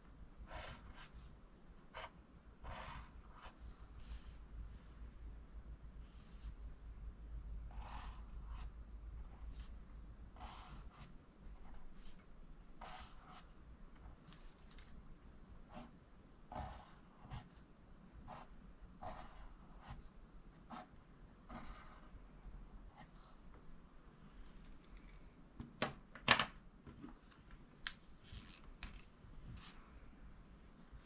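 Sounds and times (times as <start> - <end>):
pencil scratching on paper: 0.5 - 1.3, 1.9 - 4.2, 7.7 - 8.7, 10.4 - 12.1, 12.8 - 13.5, 16.5 - 17.6, 18.3 - 20.0, 21.5 - 22.1.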